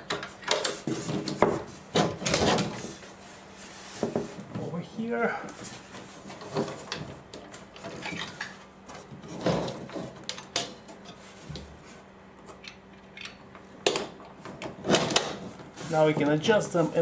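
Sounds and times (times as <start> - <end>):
closet door clicking and rattling: 0.0 - 3.0, 13.9 - 15.6.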